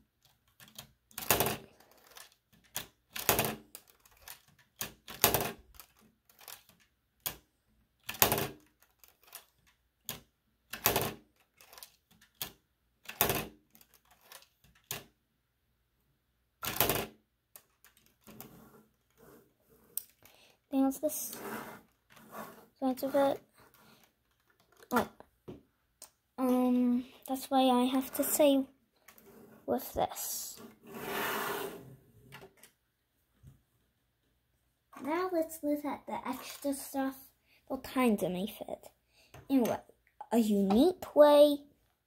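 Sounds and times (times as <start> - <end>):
plastic bricks clicking: 0.2 - 7.4, 8.0 - 15.1.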